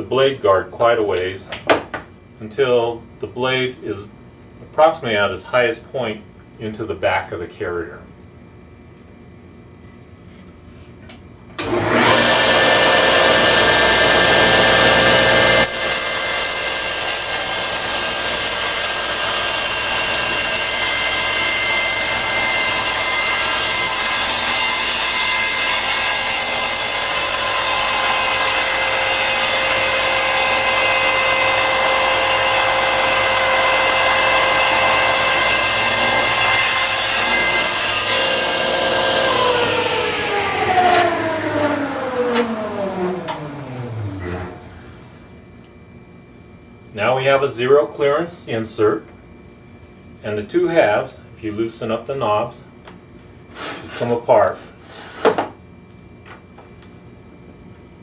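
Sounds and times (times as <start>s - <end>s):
saw blade cutting wood: 11.6s - 44.6s
table saw running: 11.6s - 45.3s.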